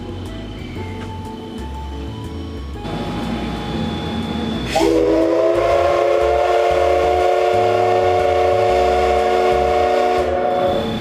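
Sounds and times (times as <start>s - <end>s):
steam hissing: 0.0s - 11.0s
steam locomotive whistle: 3.8s - 11.0s.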